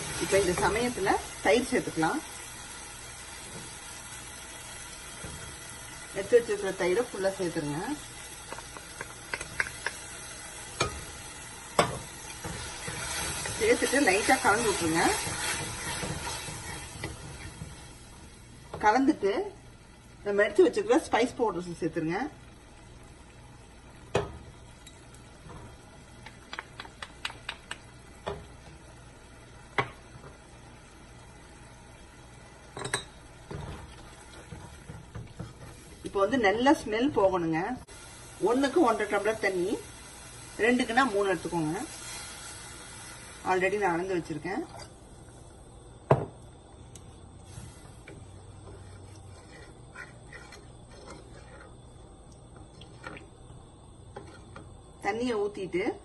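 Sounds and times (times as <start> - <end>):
spoon stirring liquid in a pot: 8.4 - 18.0, 47.5 - 53.3.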